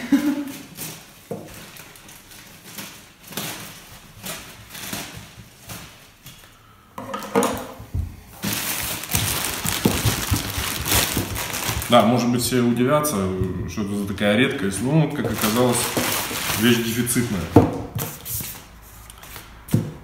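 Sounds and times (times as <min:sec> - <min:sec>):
plastic rustling: 0:00.0 - 0:06.7, 0:07.3 - 0:12.7, 0:14.5 - 0:20.0
plastic bag crinkling: 0:00.2 - 0:06.5, 0:08.4 - 0:12.5, 0:14.6 - 0:17.5.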